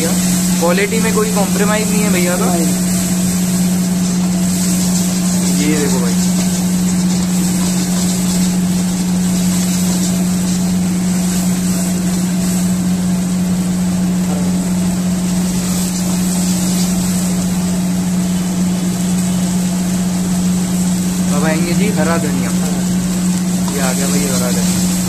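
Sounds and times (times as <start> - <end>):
kitchen machinery motor hum: 0.0 - 25.0
constant hiss: 20.6 - 25.0.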